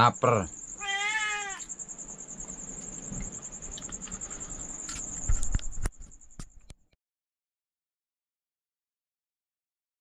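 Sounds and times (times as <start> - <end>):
cricket trilling: 0.0 - 6.9
cat meowing: 0.8 - 1.7.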